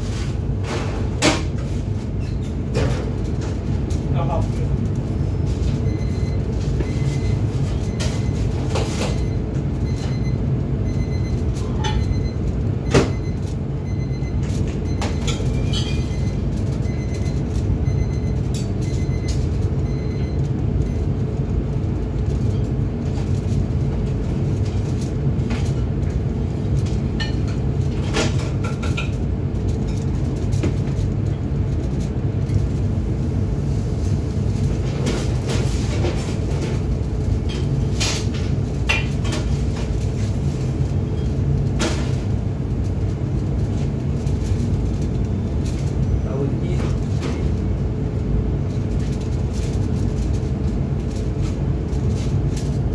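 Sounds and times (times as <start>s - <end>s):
extraction hood fan rumbling: 0.0s - 52.9s
utensils and cookware clattering: 11.4s - 13.6s, 14.3s - 19.7s, 22.2s - 32.8s, 34.0s - 47.7s.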